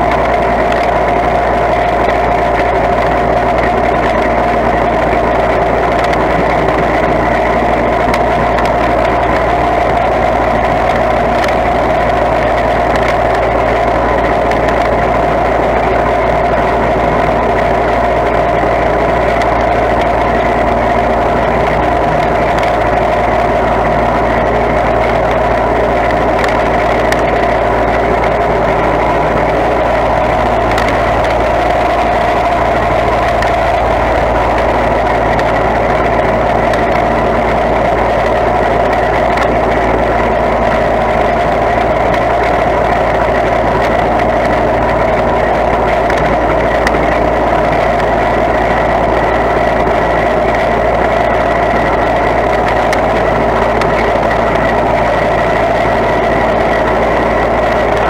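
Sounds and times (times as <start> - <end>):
garden tractor engine running: 0.0 - 58.0.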